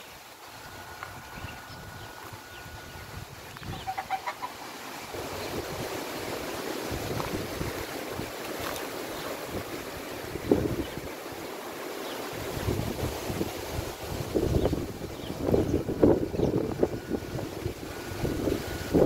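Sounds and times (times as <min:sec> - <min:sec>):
strong wind through trees: 0:00.0 - 0:19.0
wind buffeting microphone: 0:00.5 - 0:04.1, 0:05.1 - 0:19.0
chicken clucking: 0:03.6 - 0:04.7.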